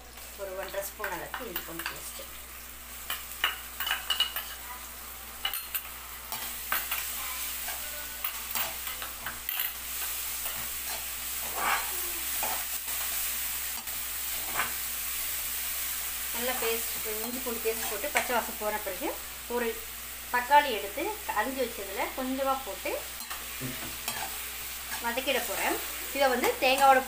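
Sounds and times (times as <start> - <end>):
food sizzling in oil: 0.0 - 27.0
spatula scraping a pan: 5.4 - 14.9, 23.2 - 27.0.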